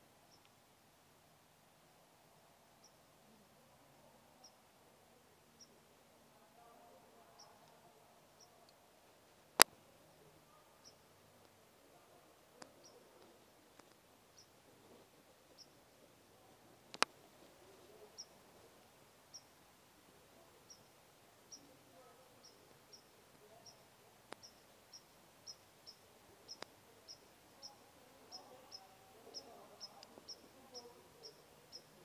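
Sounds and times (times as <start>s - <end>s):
faint high chirp: 0.3s - 0.5s, 19.3s - 19.6s, 20.6s - 32.0s
sharp clicks: 16.9s - 17.2s.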